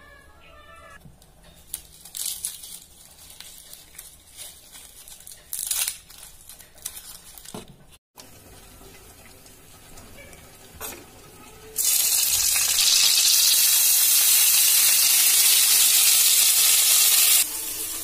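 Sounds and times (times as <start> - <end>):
onion skin crinkling and tearing: 1.1 - 7.8.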